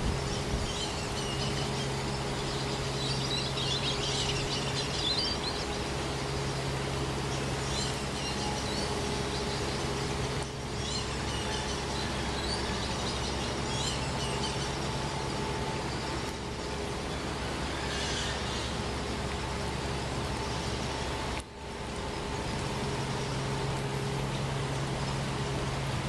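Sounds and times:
birds chirping: 0.0s - 26.0s
low droning hum: 0.0s - 26.0s.

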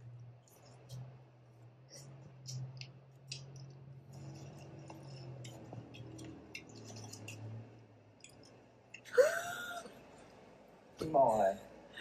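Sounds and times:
quiet eating sounds: 0.0s - 9.1s
low steady hum: 0.0s - 12.0s.

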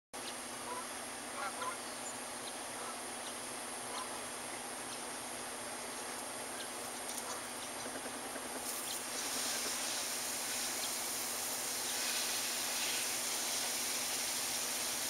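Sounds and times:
distant bird calls: 0.2s - 9.0s
outdoor background hiss: 0.2s - 15.0s.

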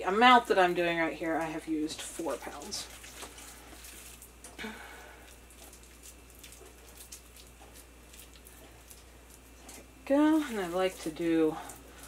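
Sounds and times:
hands squishing raw meat: 2.4s - 12.0s.

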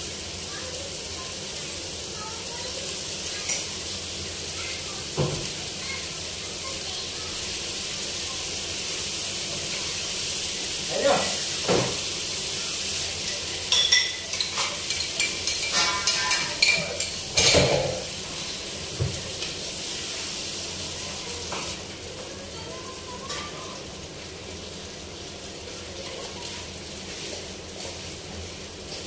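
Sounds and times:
greens sizzling in a frying pan: 0.0s - 29.0s
spatula scraping and knocking pan: 13.8s - 18.1s.

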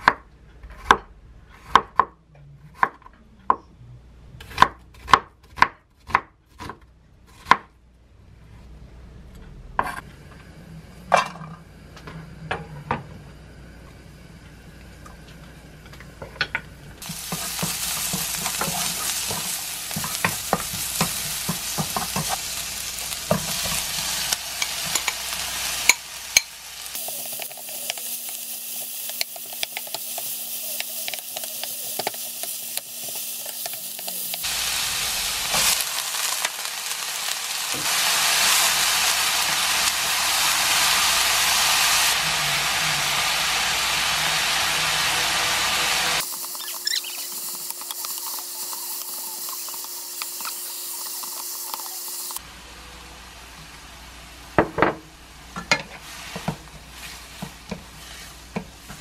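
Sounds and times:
spoon scraping a pan: 17.0s - 22.5s, 23.2s - 34.4s
food sizzling in oil: 17.0s - 52.4s, 55.7s - 59.0s.

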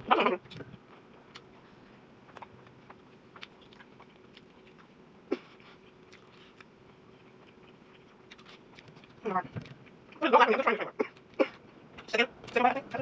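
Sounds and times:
person chewing: 0.3s - 10.2s.

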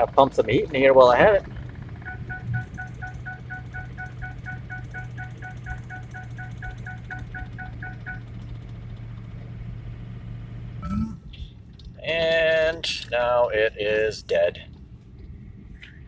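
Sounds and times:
diesel engine droning: 0.0s - 16.0s
rapid electronic warning beeps: 2.0s - 8.3s.

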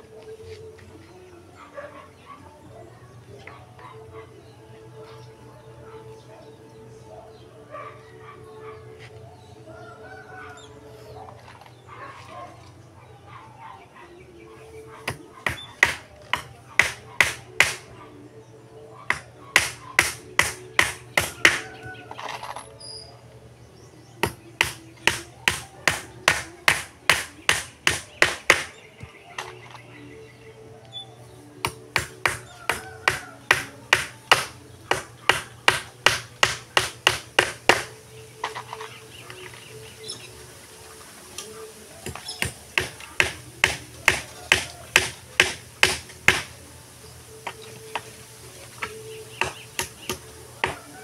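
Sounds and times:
hammer driving nails into wood: 15.5s - 17.8s, 19.1s - 21.6s, 24.3s - 28.8s, 31.9s - 37.9s, 42.1s - 46.5s.

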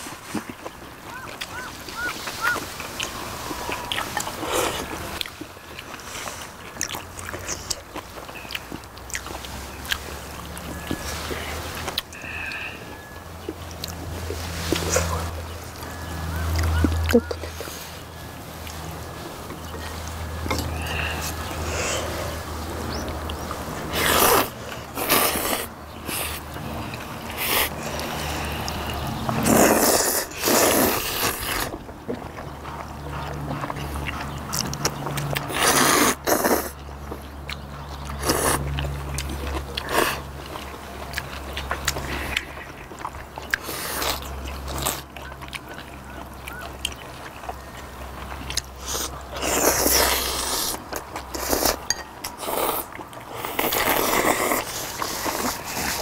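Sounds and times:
chewing and smacking: 0.0s - 56.0s
people slurping noodles: 1.1s - 7.8s, 8.7s - 13.2s, 18.7s - 31.8s, 33.1s - 36.9s, 37.9s - 45.1s, 48.5s - 56.0s.

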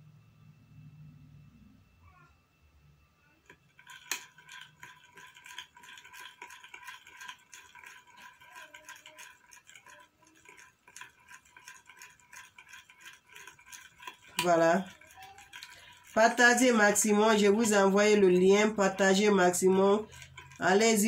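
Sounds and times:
faint steady hum: 0.0s - 8.4s.

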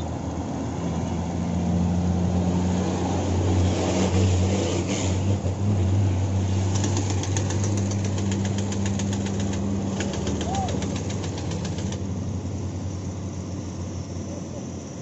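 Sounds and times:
diesel truck engine drone: 0.0s - 15.0s
tyres on gravel: 6.7s - 12.0s
fast regular ticking: 6.7s - 12.1s.

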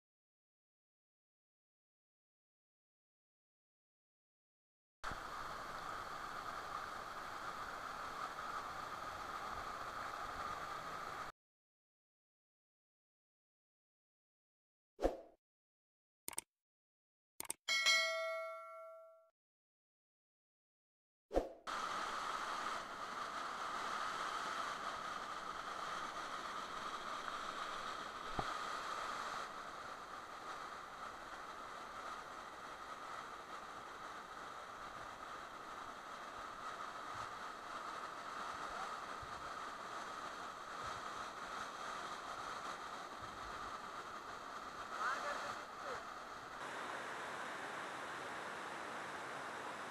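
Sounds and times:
waterfall and stream rushing: 5.1s - 11.3s, 46.6s - 49.9s
waterfall cascading over rocks: 5.1s - 11.3s, 21.7s - 49.9s
sharp click: 16.3s - 16.5s, 17.4s - 17.6s.

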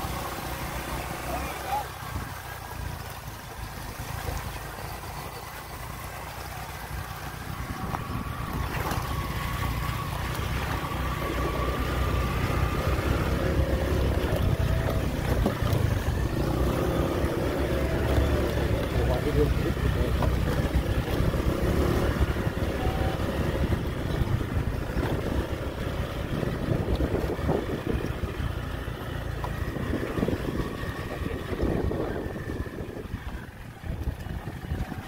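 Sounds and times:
small motorcycle engine running: 0.0s - 35.0s
wind on microphone: 7.5s - 18.0s, 20.0s - 28.7s, 29.6s - 35.0s.

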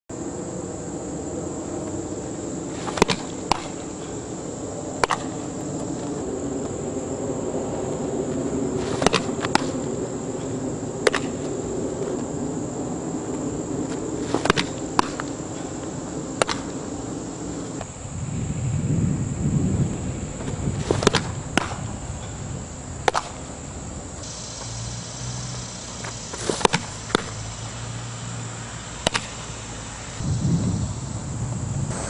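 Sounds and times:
high insect drone: 0.1s - 32.0s
softball bat cracks: 2.8s - 4.2s, 5.0s - 5.9s, 8.8s - 11.6s, 13.9s - 15.7s, 16.4s - 16.8s, 20.8s - 21.9s, 23.0s - 23.6s, 26.4s - 27.4s, 29.0s - 29.4s.

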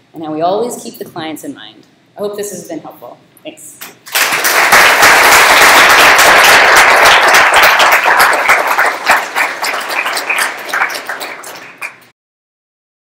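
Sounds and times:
audience applauding: 4.0s - 12.1s.

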